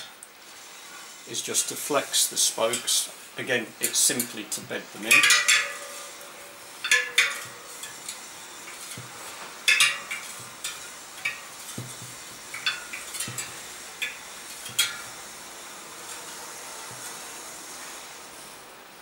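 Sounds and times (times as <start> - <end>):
metallic pings of wheel spokes: 5.1 - 17.4.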